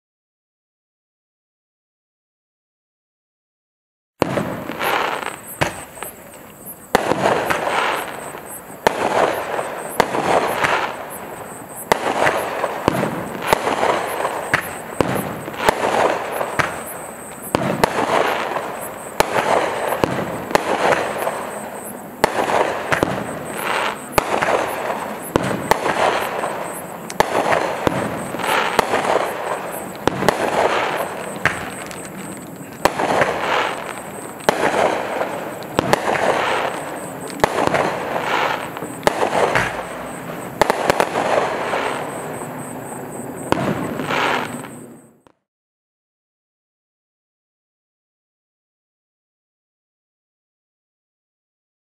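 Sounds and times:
firework launch bangs: 4.2 - 6.2, 6.9 - 11.2, 11.8 - 42.7, 43.4 - 44.9
firework shells bursting: 4.2 - 42.8.

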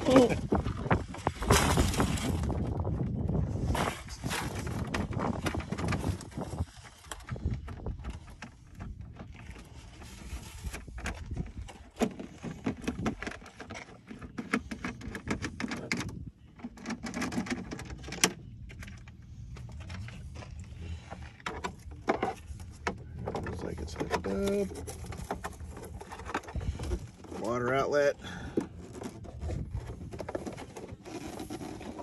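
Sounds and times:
clicks and taps on plastic hull: 10.7 - 27.8.

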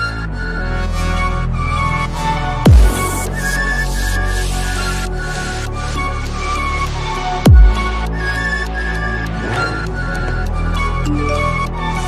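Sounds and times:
dubstep electronic music: 2.6 - 5.6
deep bass hit with falling pitch: 2.7 - 3.8.

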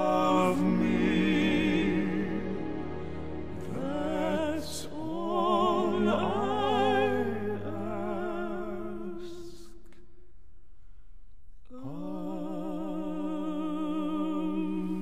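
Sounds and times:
low orchestral notes: 0.0 - 9.0
operatic bass-baritone singing: 0.0 - 9.5.

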